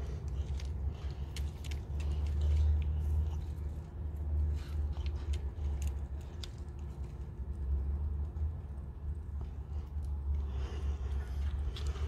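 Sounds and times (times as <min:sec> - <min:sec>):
small crackles and ticks: 0:00.0 - 0:12.0.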